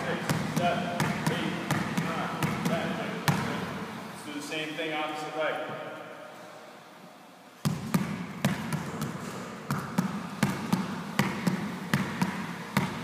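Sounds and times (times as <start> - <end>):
basketball dribbling on gym floor: 0.0 - 3.6, 7.6 - 13.0.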